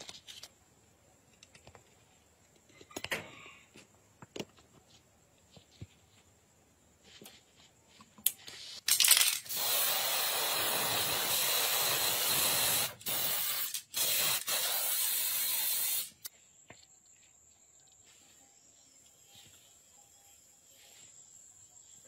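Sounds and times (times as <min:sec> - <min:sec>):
spray paint hissing: 0:08.3 - 0:16.3, 0:19.0 - 0:22.0.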